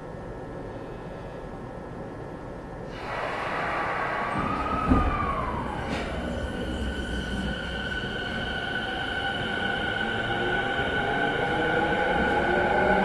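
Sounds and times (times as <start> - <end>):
traction motor whine: 2.9 - 13.0
train cabin hum: 2.9 - 13.0
train clunk: 3.8 - 8.6.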